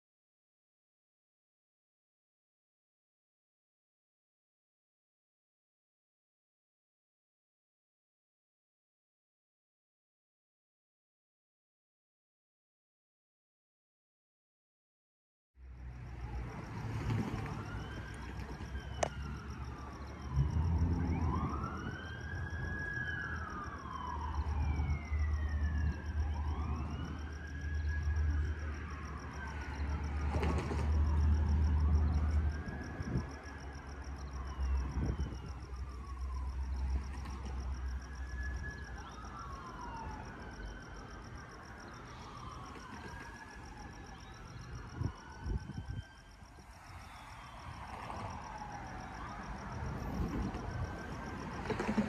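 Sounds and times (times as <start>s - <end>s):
siren wailing: 16.3s - 52.0s
diesel locomotives rumbling: 49.4s - 52.0s.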